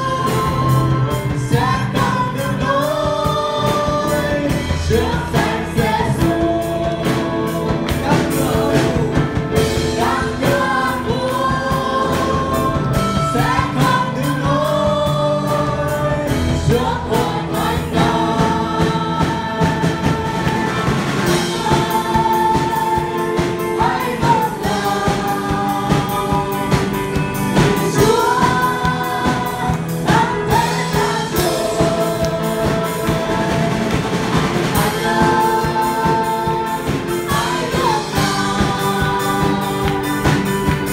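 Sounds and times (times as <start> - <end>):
man singing: 0.0 - 20.6, 21.2 - 40.6
woman singing: 0.0 - 40.8
live band playing: 0.0 - 40.9.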